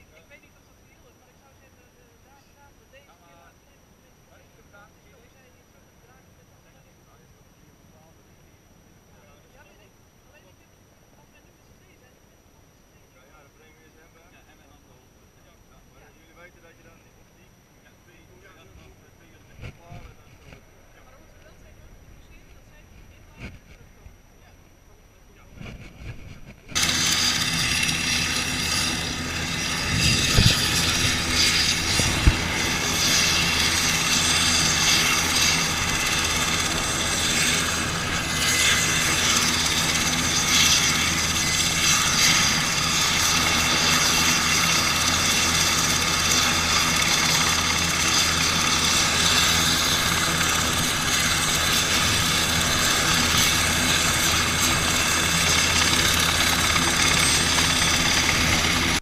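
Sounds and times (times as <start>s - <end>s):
helicopter engine and rotor whine: 13.2s - 59.0s.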